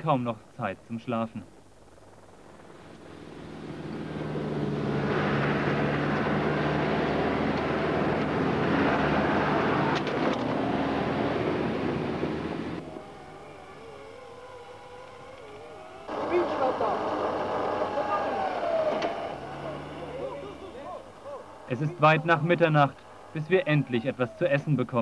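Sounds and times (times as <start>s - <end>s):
diesel engine running hard: 2.7s - 24.4s
broad rushing noise: 16.0s - 25.0s.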